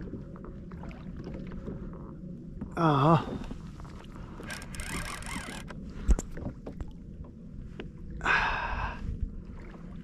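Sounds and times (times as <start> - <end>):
low rumble of water and wind: 0.0 - 10.0
knocks and clicks from gear: 4.4 - 6.3.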